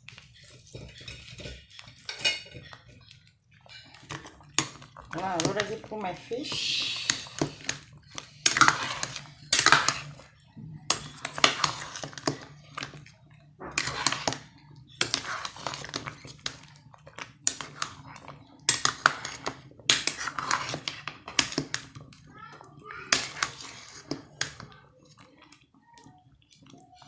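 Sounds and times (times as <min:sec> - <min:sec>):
metal ladle scraping metal pot: 0:03.6 - 0:10.3, 0:10.9 - 0:13.0, 0:13.6 - 0:16.6, 0:17.4 - 0:21.8, 0:23.0 - 0:24.7.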